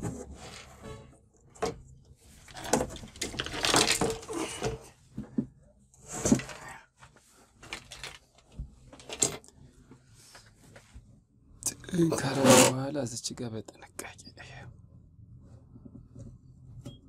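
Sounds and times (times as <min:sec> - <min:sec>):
plastic panels rustling and knocking: 0:00.0 - 0:09.4.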